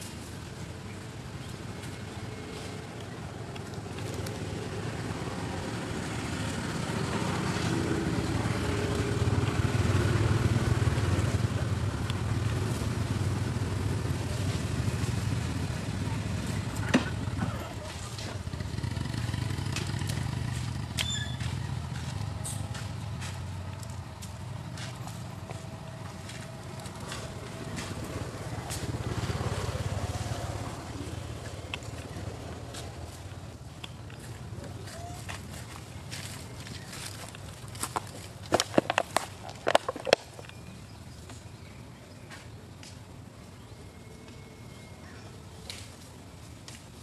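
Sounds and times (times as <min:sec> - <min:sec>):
vehicle engine droning: 0:00.0 - 0:47.0.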